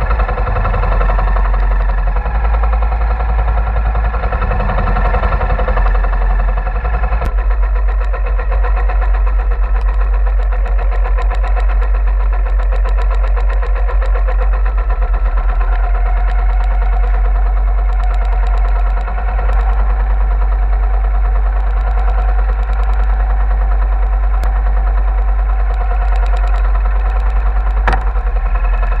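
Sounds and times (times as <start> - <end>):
boat engine pulsing: 0.0 - 29.0
sharp knock: 27.9 - 28.2.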